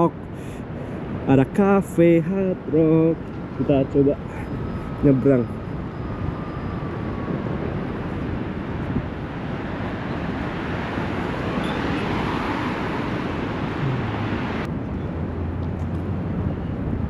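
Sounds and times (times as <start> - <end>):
road rumble: 0.0 - 17.0
car passing: 9.3 - 14.7.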